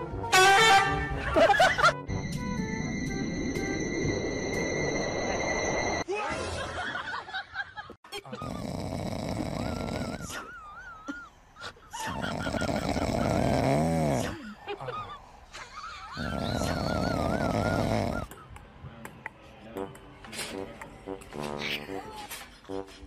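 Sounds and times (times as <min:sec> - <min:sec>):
cat snoring: 0:08.4 - 0:10.4, 0:12.1 - 0:14.4, 0:16.2 - 0:18.3.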